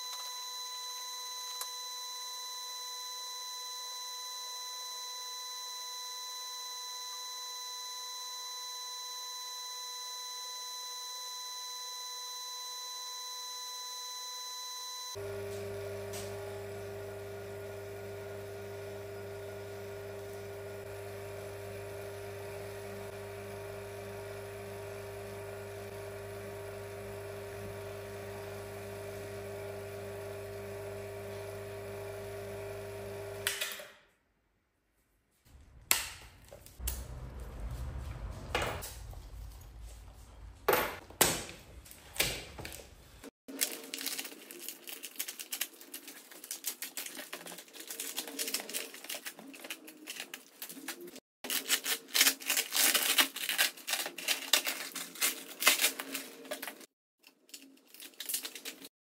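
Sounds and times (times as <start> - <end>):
vacuum pump humming: 14.2 - 33.5
plastic bagging and tape crinkling: 43.5 - 58.9.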